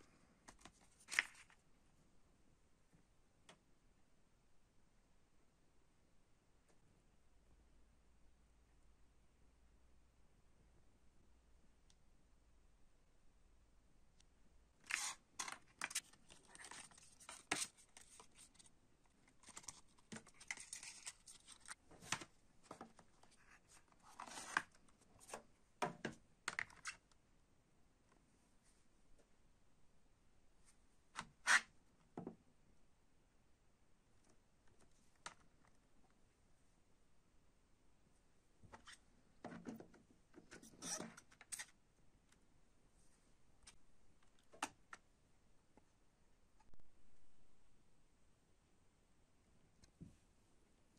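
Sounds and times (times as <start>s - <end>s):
paper rustling: 0.5s - 1.6s, 14.8s - 25.4s.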